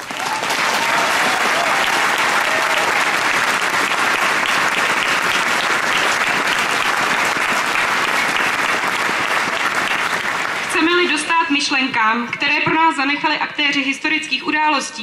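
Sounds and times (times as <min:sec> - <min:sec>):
crowd applauding: 0:00.0 - 0:11.3.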